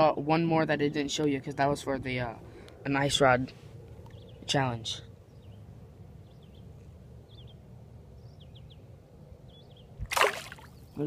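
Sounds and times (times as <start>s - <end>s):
low steady rumble: 0.0s - 10.1s
faint birds chirping: 0.1s - 11.0s.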